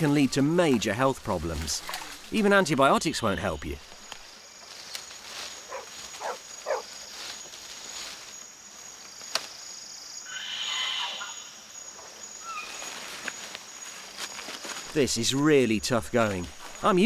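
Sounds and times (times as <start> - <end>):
high insect drone: 0.0 - 17.0
buzzy animal call: 10.2 - 11.6
short rising animal calls: 10.2 - 11.6.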